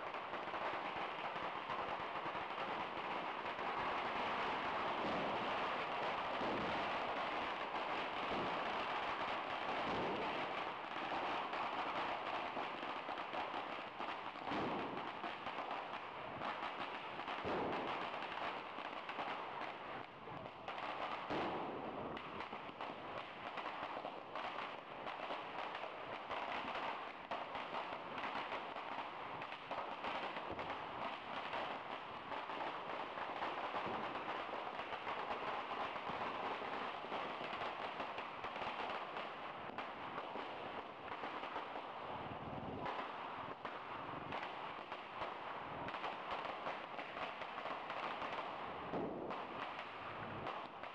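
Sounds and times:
heavy firecracker bangs: 0:00.0 - 0:24.7
firecrackers crackling: 0:00.0 - 0:50.9.

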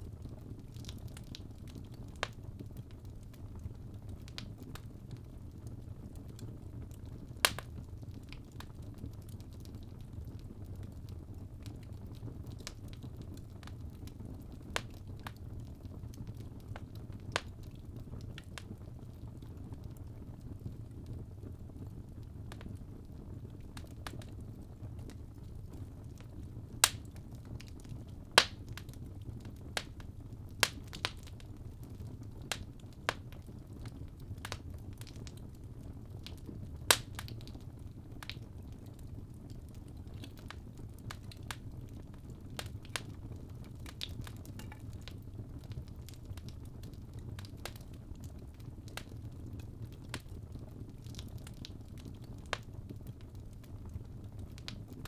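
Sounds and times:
fire crackling and popping: 0:00.0 - 0:55.0
fire rumbling: 0:00.0 - 0:55.0.

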